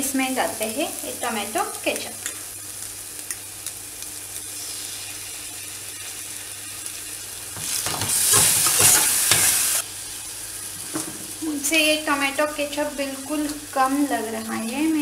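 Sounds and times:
onion sizzling in oil: 0.0 - 15.0
spoon scraping a saucepan: 8.0 - 9.8.

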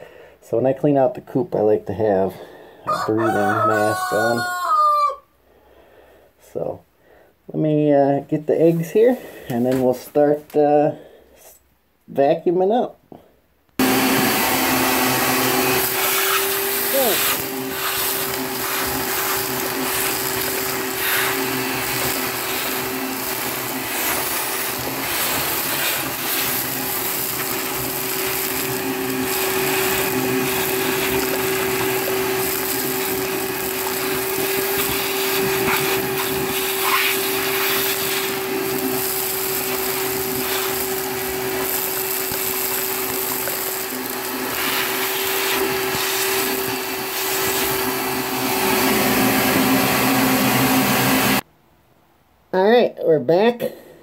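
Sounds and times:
shop vacuum humming: 13.8 - 51.4
vacuum nozzle sucking debris: 13.8 - 51.4.

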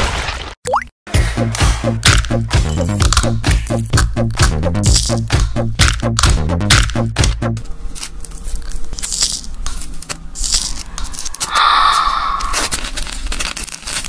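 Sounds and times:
eggshell crackling and scraping: 4.8 - 5.4, 7.8 - 14.0
membrane tearing: 7.8 - 14.0.

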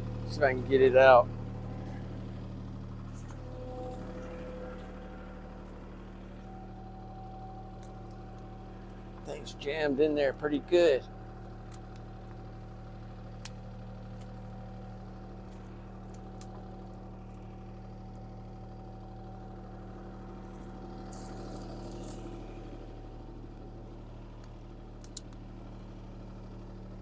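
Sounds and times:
diesel engine idling: 0.0 - 27.0.

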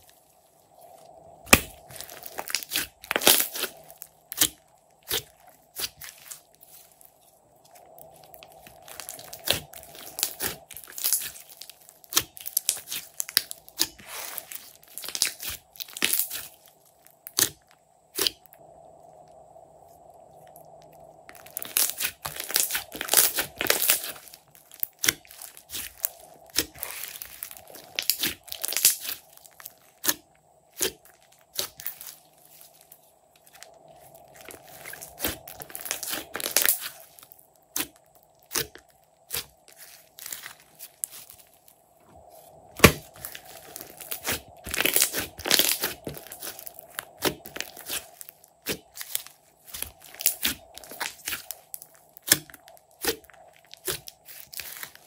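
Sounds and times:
slime wet squishes: 1.0 - 7.1, 20.5 - 41.6, 42.7 - 55.0
slime crackling pops: 21.3 - 30.2, 42.8 - 55.0.

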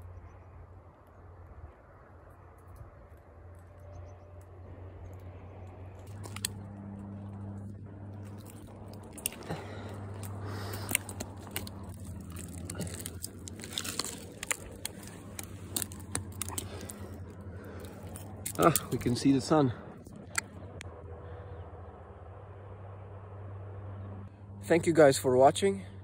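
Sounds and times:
bark crunching and scraping: 5.2 - 19.3
sharp clicks and snaps: 20.1 - 20.9.

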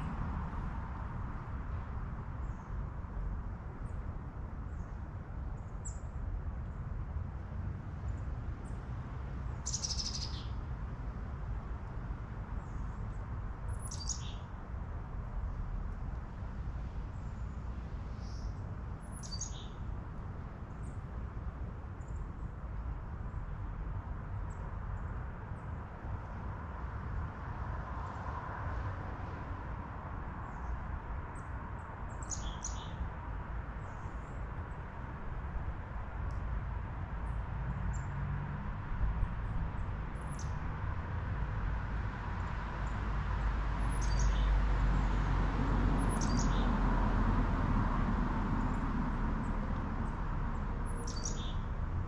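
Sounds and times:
steady wind with low rumble: 0.0 - 52.0
birds chirping: 9.6 - 10.5, 13.8 - 14.4, 50.9 - 51.6.

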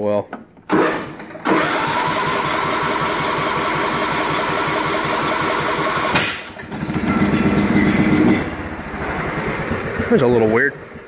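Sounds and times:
engine backfire bang: 6.0 - 10.2.

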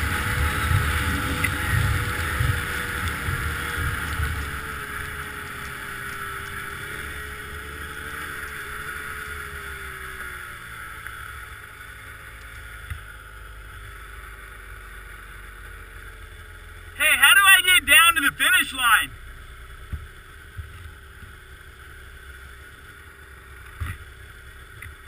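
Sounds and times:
snowmobile engine running: 0.0 - 10.7
wind and track noise: 0.0 - 10.8.

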